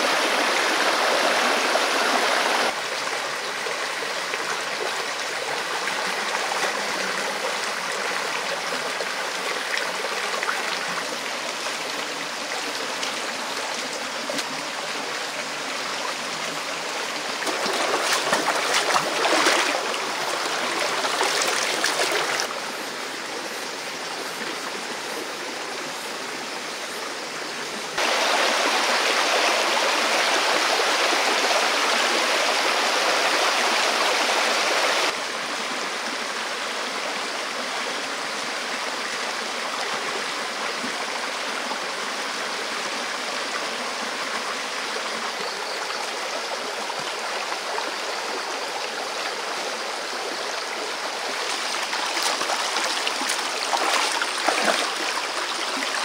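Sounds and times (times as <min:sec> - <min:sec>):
stream flowing over rocks: 0:00.0 - 0:56.0
feet wading through water: 0:17.4 - 0:22.5, 0:51.4 - 0:56.0.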